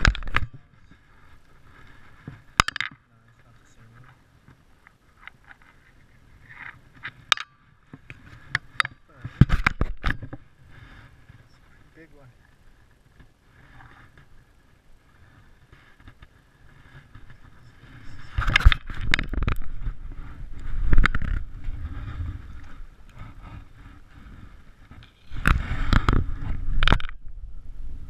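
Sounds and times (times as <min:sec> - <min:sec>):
grass rustling against camera: 0:00.0 - 0:28.0.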